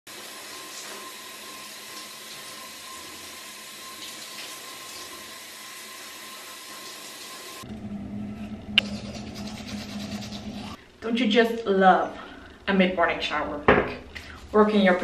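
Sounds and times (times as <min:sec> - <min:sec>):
shower water spraying: 0:00.1 - 0:07.6, 0:08.8 - 0:10.8
thin steady whine: 0:07.6 - 0:11.0.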